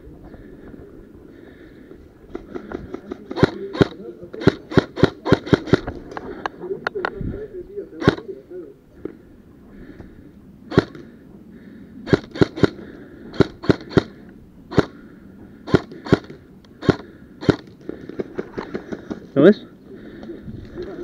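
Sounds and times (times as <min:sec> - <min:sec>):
airsoft gun shots: 0:02.5 - 0:05.9, 0:10.7 - 0:11.0, 0:12.1 - 0:14.9.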